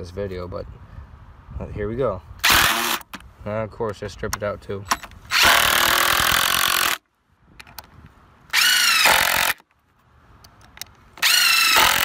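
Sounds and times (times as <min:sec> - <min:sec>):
impact driver driving screws: 0:02.4 - 0:03.2, 0:04.9 - 0:07.0, 0:08.5 - 0:09.7, 0:10.7 - 0:12.0.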